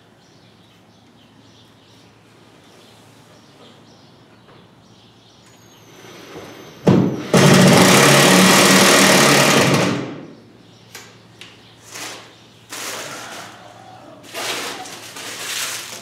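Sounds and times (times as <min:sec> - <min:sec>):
power drill driving a screw: 0:07.1 - 0:10.2.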